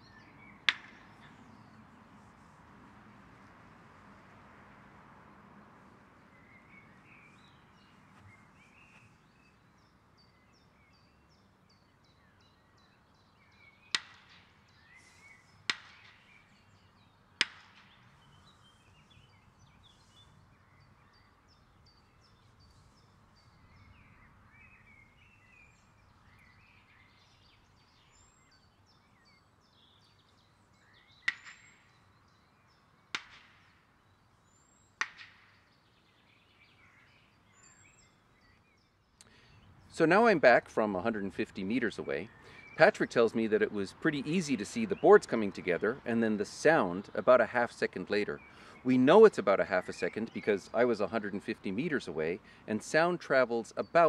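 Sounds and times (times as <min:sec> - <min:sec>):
faint birds chirping: 0:00.0 - 0:54.0
distant wooden boards clapping: 0:00.6 - 0:01.5, 0:13.9 - 0:14.6, 0:15.7 - 0:16.3, 0:17.4 - 0:18.1, 0:31.2 - 0:31.9, 0:33.1 - 0:33.8, 0:35.0 - 0:35.6.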